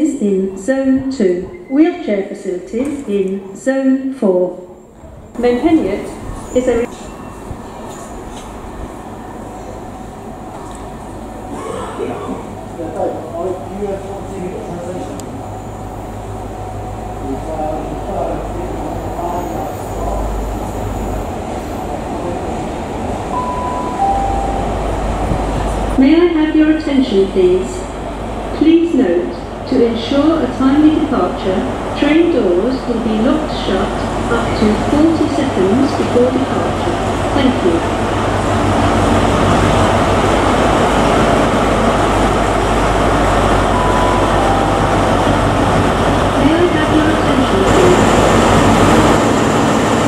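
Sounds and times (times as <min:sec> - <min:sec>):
station chime tone: 0:23.3 - 0:25.4, 0:43.7 - 0:45.6
diesel engine humming: 0:39.8 - 0:50.0.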